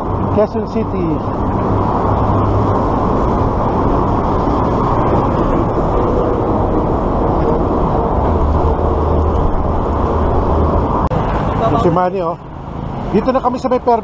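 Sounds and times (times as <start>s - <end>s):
wind rush on microphone: 0.0s - 11.9s
road traffic: 0.0s - 14.0s
low hum: 1.2s - 11.1s.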